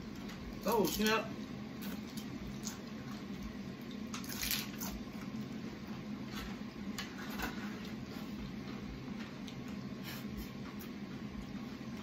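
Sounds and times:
low background hum: 0:00.0 - 0:12.0
taco shells crunching: 0:00.6 - 0:01.2, 0:01.8 - 0:05.4.

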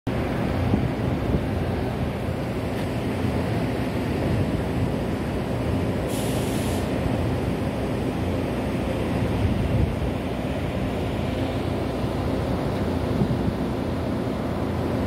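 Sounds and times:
ship engine rumble: 0:00.1 - 0:15.0
wind and water rushing: 0:00.1 - 0:15.0
brief hiss: 0:06.1 - 0:07.0.

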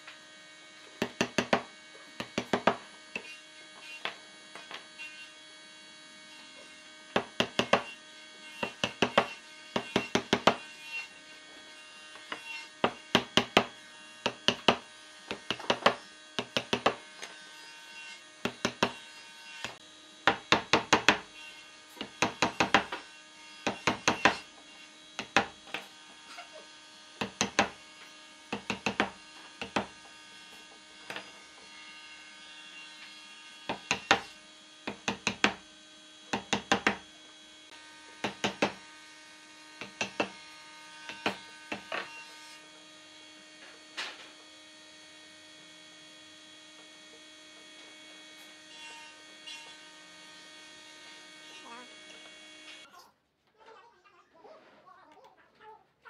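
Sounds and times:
mallet striking wood chisel: 0:01.0 - 0:03.3, 0:07.1 - 0:07.9, 0:08.6 - 0:10.7, 0:12.2 - 0:17.0, 0:18.4 - 0:19.0, 0:19.6 - 0:21.3, 0:22.0 - 0:23.0, 0:23.6 - 0:24.4, 0:25.2 - 0:25.6, 0:27.2 - 0:27.8, 0:28.5 - 0:30.0, 0:33.7 - 0:35.6, 0:36.3 - 0:37.0, 0:38.2 - 0:38.8, 0:39.8 - 0:40.4, 0:41.1 - 0:42.0.

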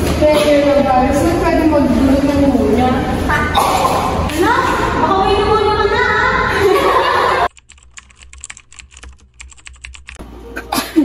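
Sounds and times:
girl speaking: 0:02.4 - 0:06.7
keyboard typing clicks: 0:07.5 - 0:10.2.

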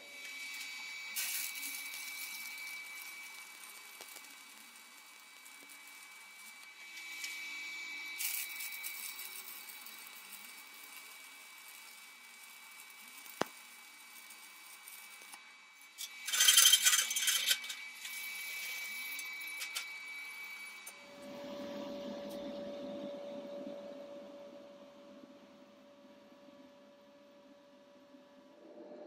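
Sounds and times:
welding arc sizzling: 0:00.0 - 0:26.7
metallic scraping and clinking: 0:08.1 - 0:21.0.

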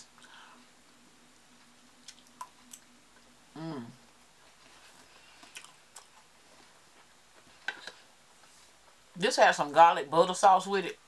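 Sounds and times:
person humming: 0:03.5 - 0:04.0
close chewing: 0:04.5 - 0:07.1.

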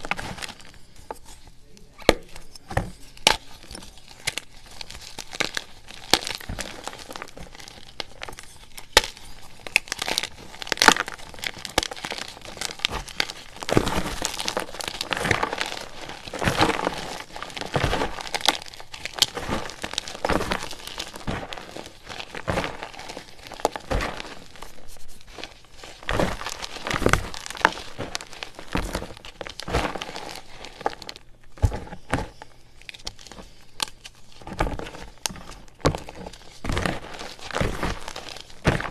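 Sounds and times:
chalk crushed by hand: 0:02.1 - 0:38.9.

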